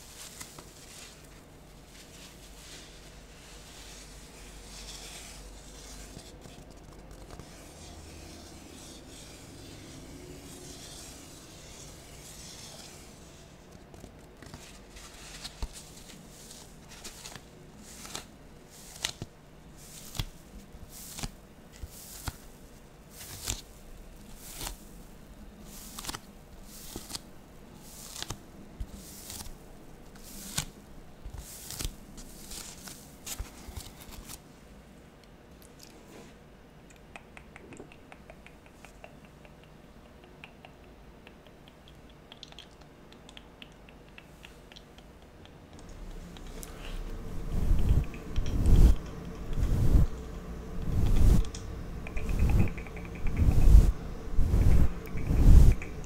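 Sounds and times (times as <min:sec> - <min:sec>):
styrofoam rubbing: 0:02.0 - 0:13.6, 0:47.4 - 0:50.2.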